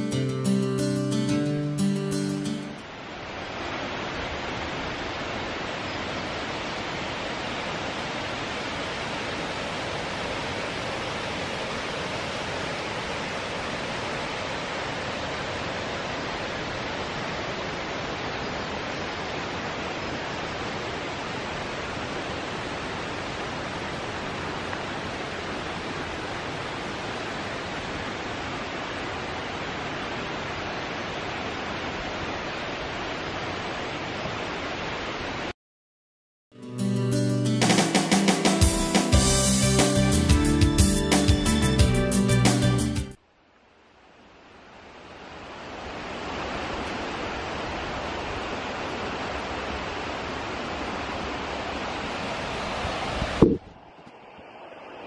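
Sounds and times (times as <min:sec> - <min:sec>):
mountain stream rushing: 0:00.0 - 0:35.6, 0:37.6 - 0:55.0.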